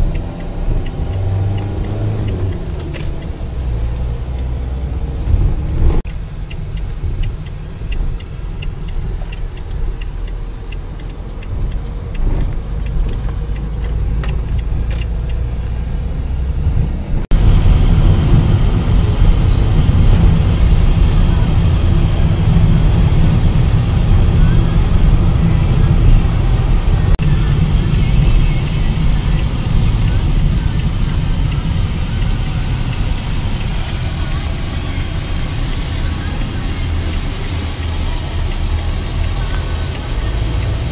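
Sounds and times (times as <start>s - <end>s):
light rattling ticks: 0.0s - 4.6s, 6.1s - 16.0s, 22.6s - 40.9s
car engine and tyre rumble: 0.0s - 40.9s.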